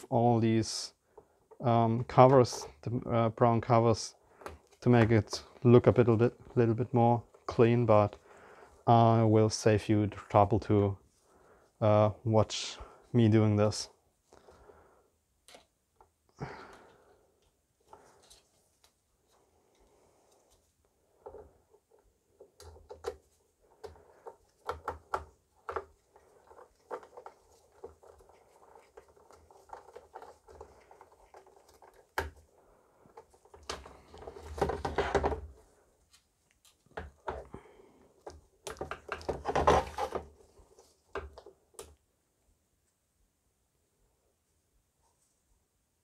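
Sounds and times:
handling noise: 21.1 - 35.8.

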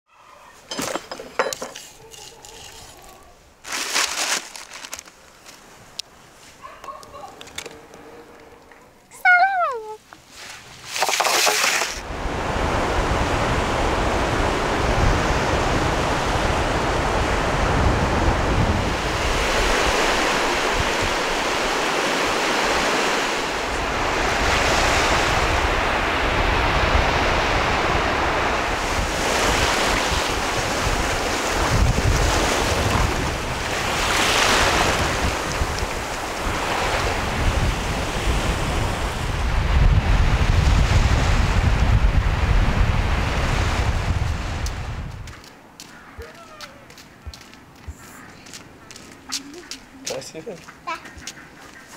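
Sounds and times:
surf breaking on a beach: 10.4 - 45.2
wind buffeting microphone: 12.0 - 50.0.

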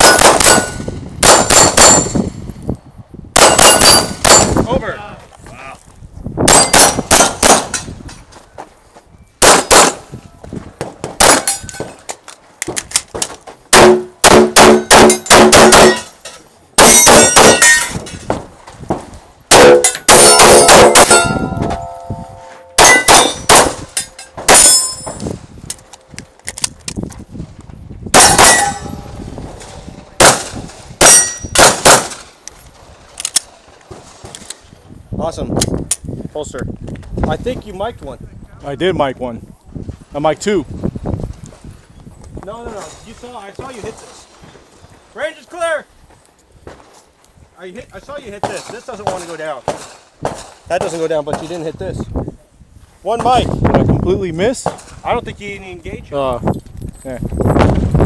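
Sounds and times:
pistol shots: 0.0 - 2.2, 3.4 - 4.6, 6.5 - 7.8, 9.4 - 10.1, 11.2 - 11.7, 13.7 - 16.1, 16.8 - 18.0, 19.5 - 21.6, 22.8 - 25.0, 28.1 - 29.0, 30.2 - 32.3
steel targets clanging and ringing: 3.5 - 4.6, 13.8 - 18.3, 19.5 - 25.3, 28.2 - 29.2, 31.0 - 31.6.

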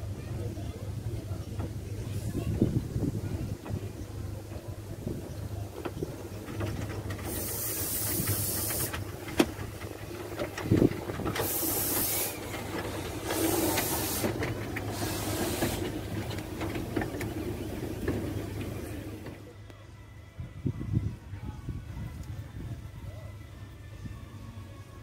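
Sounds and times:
steam locomotive hissing steam: 0.0 - 19.4.

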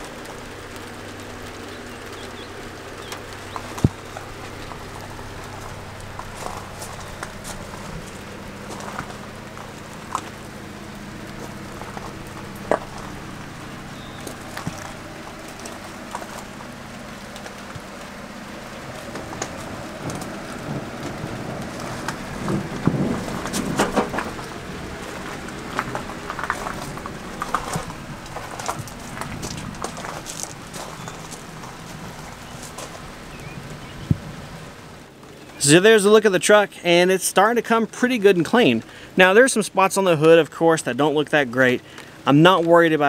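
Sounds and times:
low hum: 0.0 - 35.6
footsteps on wet gravel: 0.0 - 43.0
light rain patter: 0.0 - 43.0.

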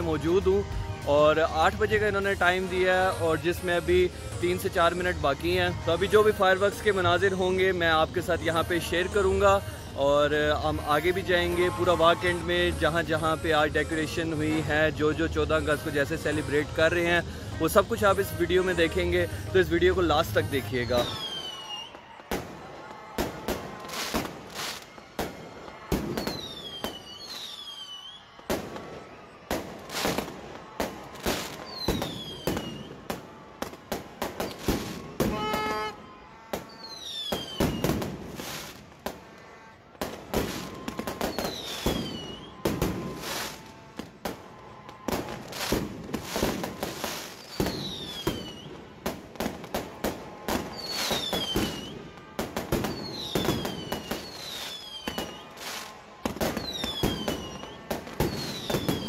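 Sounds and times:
falling firework whistles: 20.9 - 22.5, 23.2 - 36.0, 36.6 - 38.8, 40.1 - 43.7, 45.0 - 48.8, 50.5 - 59.0.

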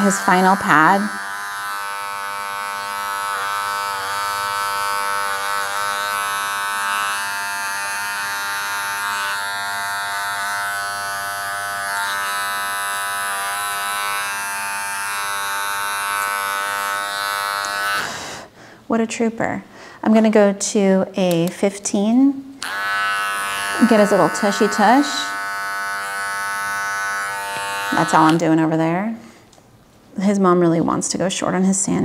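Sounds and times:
electric clippers buzzing: 0.0 - 18.4, 22.6 - 28.6.

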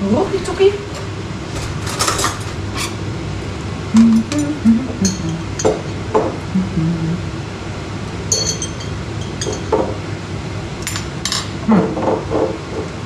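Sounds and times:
utensils clinking against dishes: 0.9 - 3.0, 4.0 - 6.0, 8.3 - 10.0, 10.8 - 12.9.

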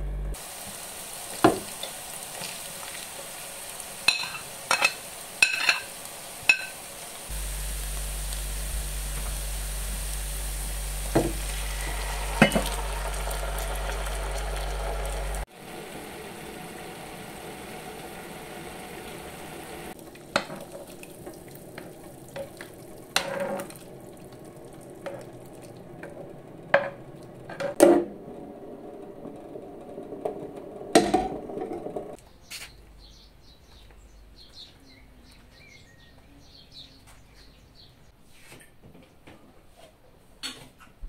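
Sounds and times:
frying pan sizzling: 0.3 - 32.2
metal spoon scraping a pan: 4.1 - 5.9, 23.2 - 23.7.

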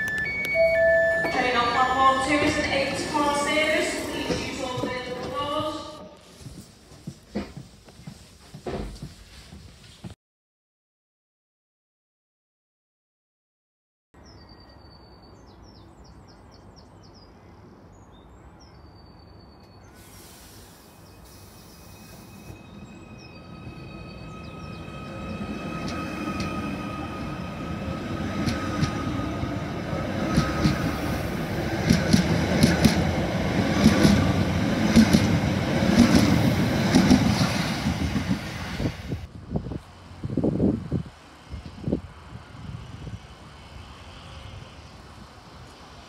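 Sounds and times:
short beeps: 0.0 - 1.9
electric train whine and rumble: 0.0 - 6.2, 19.0 - 46.0.

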